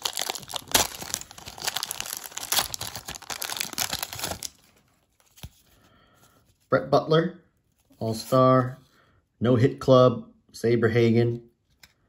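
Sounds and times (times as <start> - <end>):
plastic wrapper crinkling and tearing: 0.0 - 5.7.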